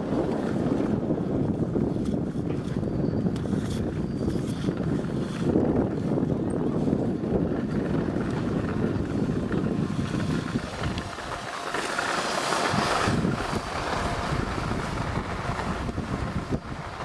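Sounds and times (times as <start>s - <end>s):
wind buffeting microphone: 0.0s - 17.0s
skis hissing on snow: 9.8s - 17.0s.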